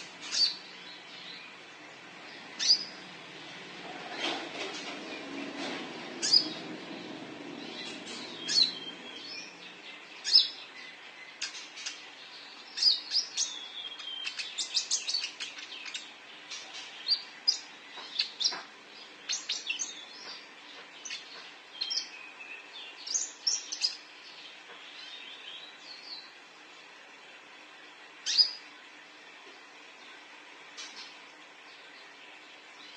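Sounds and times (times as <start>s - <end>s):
bird chirping: 0.0s - 3.2s, 6.2s - 26.4s, 28.2s - 28.6s.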